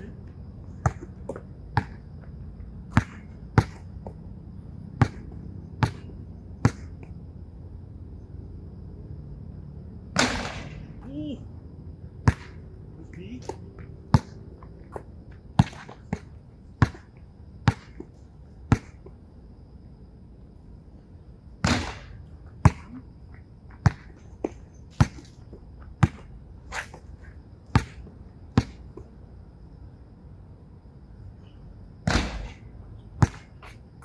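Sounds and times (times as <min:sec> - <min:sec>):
basketball bouncing on a court: 0:02.9 - 0:04.2, 0:04.9 - 0:07.0, 0:12.2 - 0:12.6, 0:13.4 - 0:14.4, 0:15.6 - 0:18.0, 0:18.7 - 0:19.0, 0:21.6 - 0:23.0, 0:26.0 - 0:26.3, 0:27.7 - 0:28.8, 0:33.2 - 0:33.5.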